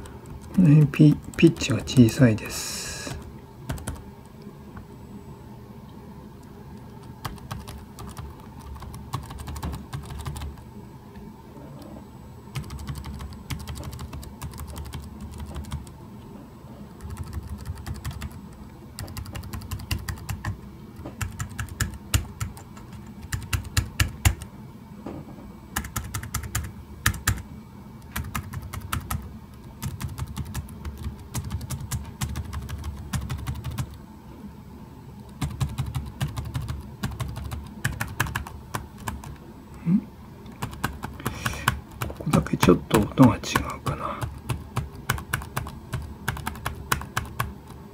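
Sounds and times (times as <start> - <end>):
laptop keyboard keys tapping: 0.0 - 0.6, 3.1 - 4.0, 6.8 - 10.6, 12.5 - 16.0, 17.0 - 24.5, 25.8 - 27.4, 28.0 - 34.0, 35.3 - 39.4, 40.5 - 47.8.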